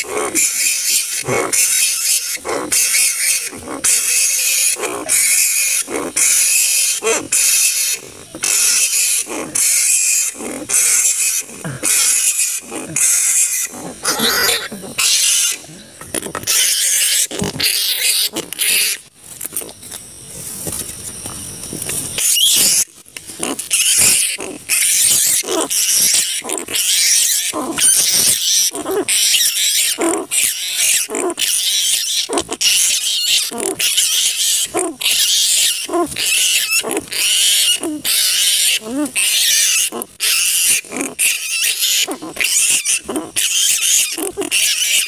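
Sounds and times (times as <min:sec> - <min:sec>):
flying foxes screeching: 0:00.0 - 0:15.7, 0:22.2 - 0:45.0.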